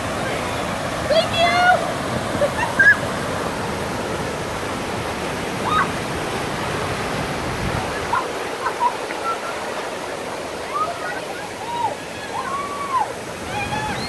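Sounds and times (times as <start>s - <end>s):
water rushing down slide: 0.0s - 14.0s.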